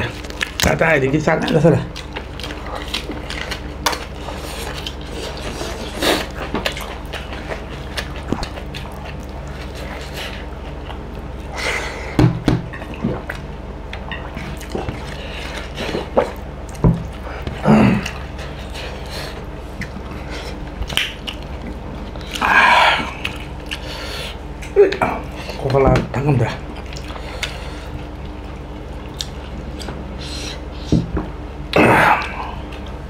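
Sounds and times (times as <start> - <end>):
chewing: 0.0 - 12.1, 12.7 - 25.8, 26.5 - 31.0
steady low hum: 0.0 - 33.0.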